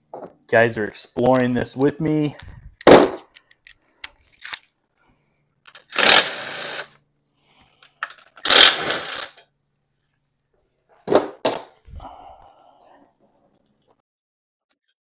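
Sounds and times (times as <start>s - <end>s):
cordless ratchet whirring: 5.7s - 7.0s, 8.4s - 9.4s.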